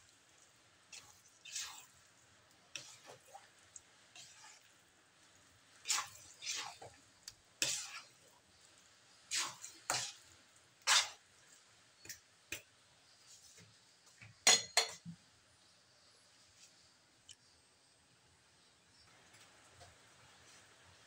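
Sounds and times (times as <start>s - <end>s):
spatula scraping sticky rice in wok: 0.0s - 13.7s.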